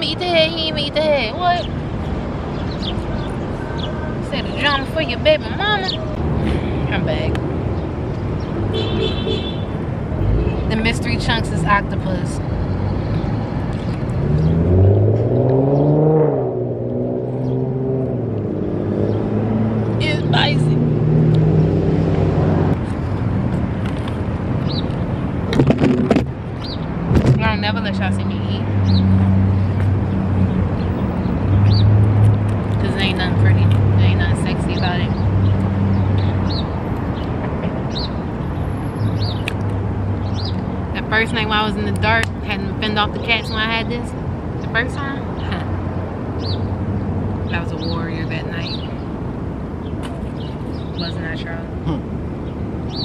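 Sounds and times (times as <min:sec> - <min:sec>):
low traffic rumble: 0:00.0 - 0:53.0
car engine accelerating: 0:14.1 - 0:22.8
bird chirping: 0:34.1 - 0:41.4, 0:44.6 - 0:49.2.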